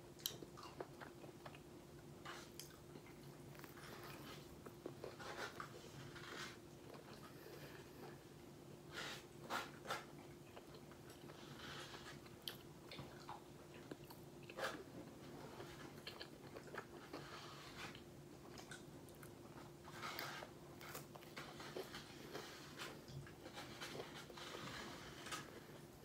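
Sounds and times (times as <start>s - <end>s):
chewing and biting sandwich: 9.5s - 25.8s.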